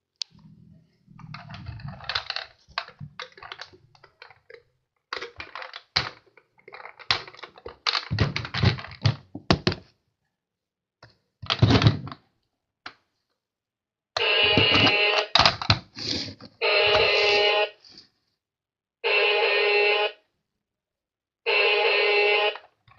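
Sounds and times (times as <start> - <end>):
plastic toy clicking and knocking: 1.2 - 9.9, 14.6 - 16.0.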